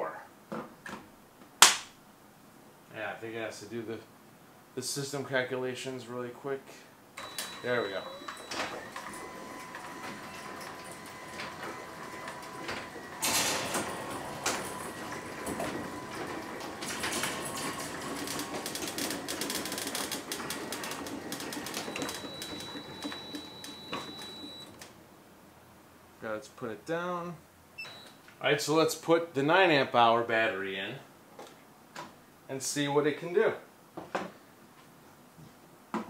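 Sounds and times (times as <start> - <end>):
garage door clattering: 7.2 - 24.8
garage door opener whine: 7.2 - 25.0.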